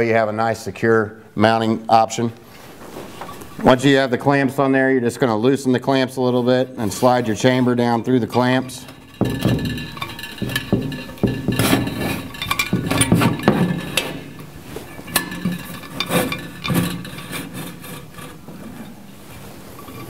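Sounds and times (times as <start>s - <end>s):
metal scraping and rubbing: 6.2s - 20.0s
metal clinks and knocks: 8.0s - 20.0s.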